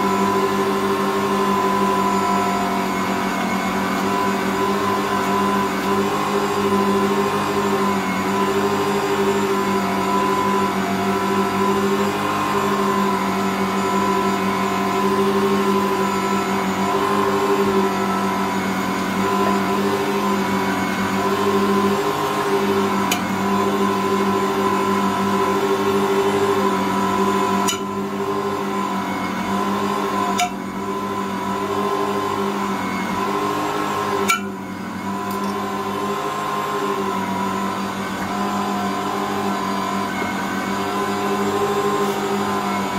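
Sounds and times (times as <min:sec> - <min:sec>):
stand mixer motor hum: 0:00.0 - 0:42.9.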